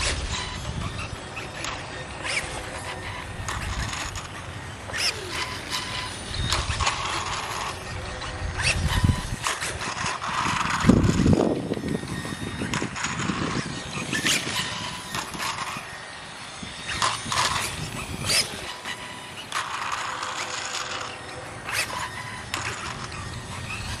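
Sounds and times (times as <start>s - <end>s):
electric motor and chain whining: 0.0s - 24.0s.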